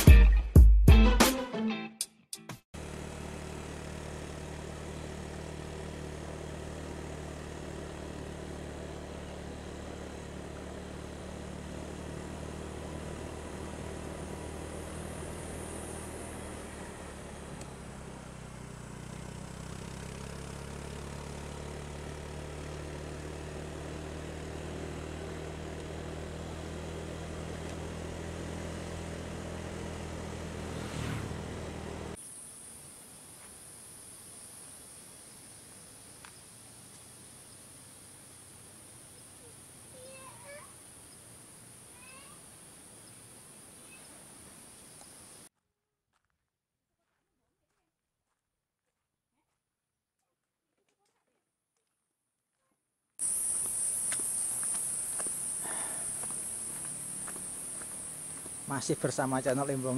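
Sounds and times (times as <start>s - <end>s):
motorcycle engine running: 2.8s - 32.2s, 53.2s - 59.9s.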